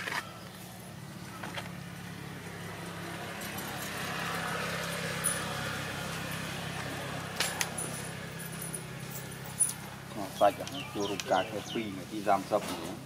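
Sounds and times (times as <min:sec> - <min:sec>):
vehicle passing: 0:00.1 - 0:13.0.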